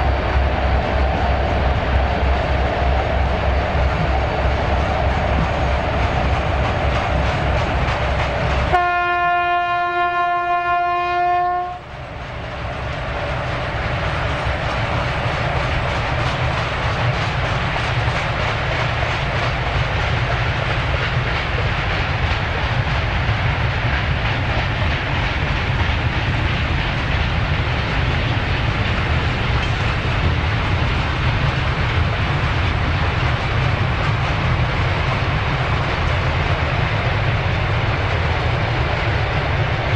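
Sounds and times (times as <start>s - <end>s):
diesel locomotive engines under load: 0.0s - 39.9s
train wheel clatter: 0.0s - 39.9s
locomotive horn blast: 8.7s - 11.8s.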